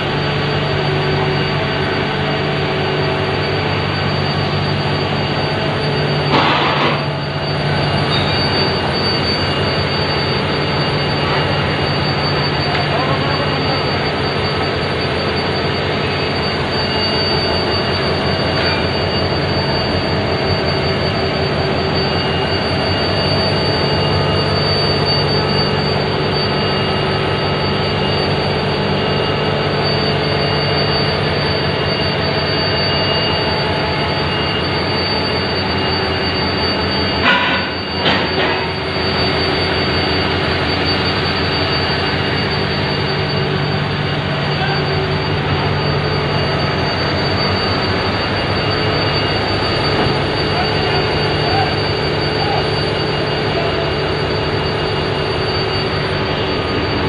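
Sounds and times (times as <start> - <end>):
diesel locomotive engine running: 0.0 - 57.0
high steady whine: 0.0 - 57.0
sharp metallic knocks: 37.2 - 38.7.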